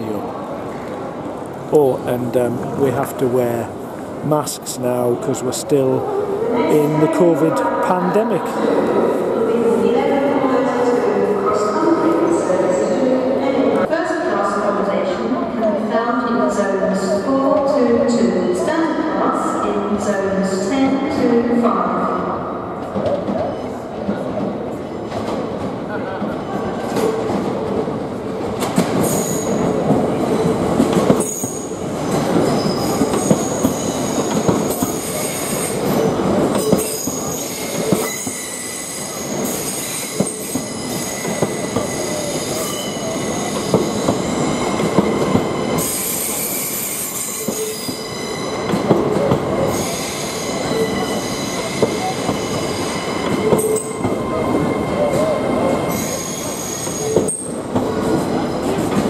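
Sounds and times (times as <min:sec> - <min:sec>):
high wheel squeal on rail: 0:29.0 - 0:29.7, 0:31.2 - 0:58.9.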